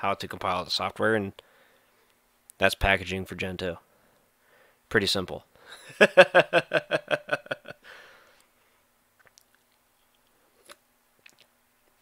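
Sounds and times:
breathy exhale: 4.0s - 4.8s, 7.8s - 8.4s
man chuckling: 5.7s - 7.9s.

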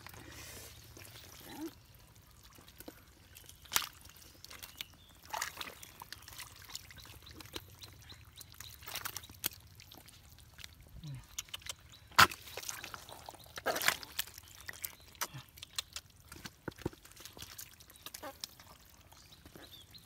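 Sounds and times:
hands splashing in muddy water: 2.7s - 19.5s
sharp wet splats: 11.2s - 16.5s.

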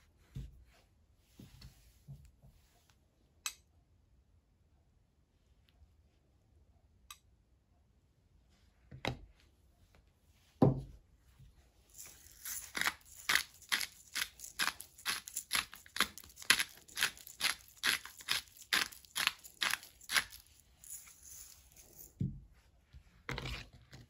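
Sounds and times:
salt mill grinding: 11.9s - 22.1s.

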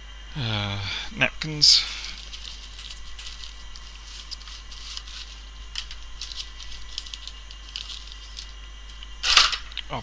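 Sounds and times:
steady low hum: 0.0s - 10.0s
small scattered ticks: 1.4s - 10.0s
paper rustling: 2.0s - 8.6s.

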